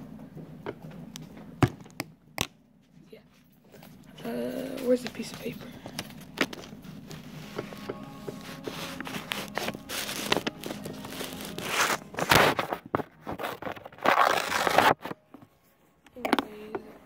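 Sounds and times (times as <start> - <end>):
paper rustling and crinkling: 4.8 - 15.5.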